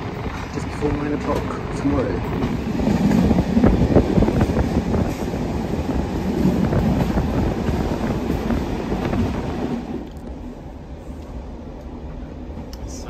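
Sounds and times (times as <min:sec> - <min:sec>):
train wheels clicking: 0:00.0 - 0:10.4
train rumble: 0:00.0 - 0:13.0.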